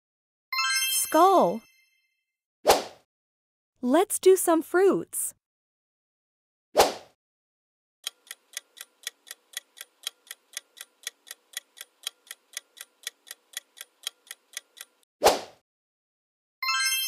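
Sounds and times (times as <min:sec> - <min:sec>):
clock ticking: 0:08.0 - 0:15.1.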